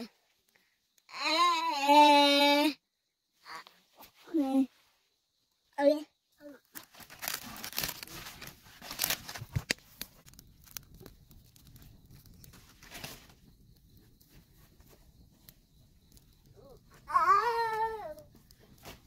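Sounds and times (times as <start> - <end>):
rustling and crinkling: 6.4 - 19.0.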